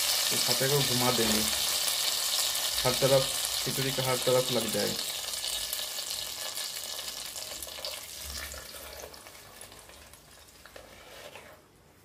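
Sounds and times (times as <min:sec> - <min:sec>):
hot oil sizzling: 0:00.0 - 0:10.8.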